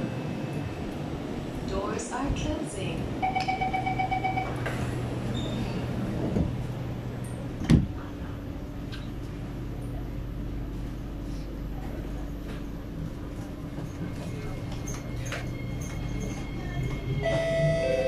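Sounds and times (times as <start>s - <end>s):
low hum of standing train: 0.0s - 18.0s
sliding train doors closing: 4.4s - 9.3s.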